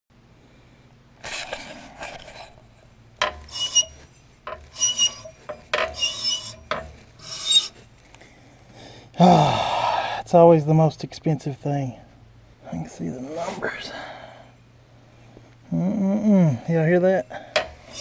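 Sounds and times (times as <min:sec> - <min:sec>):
pulley grinding rasp with squeal: 0:03.2 - 0:07.8, 0:17.5 - 0:18.0.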